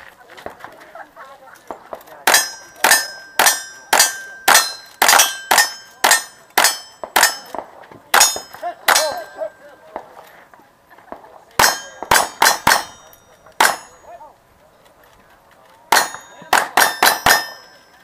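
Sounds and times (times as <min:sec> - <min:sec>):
metallic clang of steel target: 0:02.2 - 0:09.6, 0:11.6 - 0:14.1, 0:15.9 - 0:18.0
rifle gunshots: 0:11.6 - 0:13.0.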